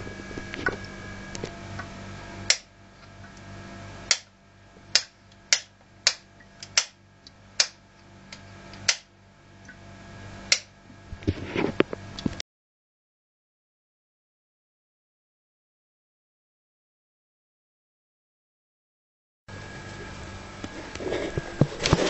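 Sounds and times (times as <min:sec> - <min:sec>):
hard drive whirring: 0:00.0 - 0:12.4, 0:19.5 - 0:22.0.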